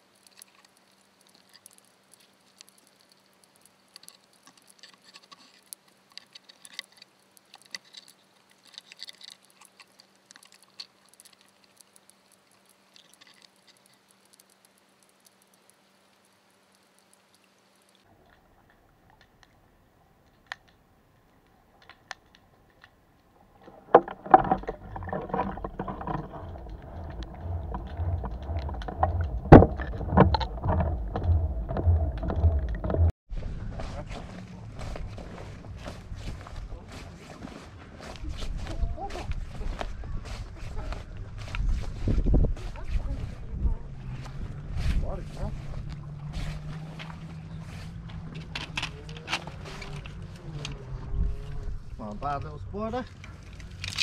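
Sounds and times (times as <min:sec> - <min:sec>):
faint underwater clicks and crackles: 0:00.0 - 0:33.1, 0:34.0 - 0:54.0
water rushing past camera: 0:23.4 - 0:33.1
rough rumble with knocks: 0:23.4 - 0:54.0.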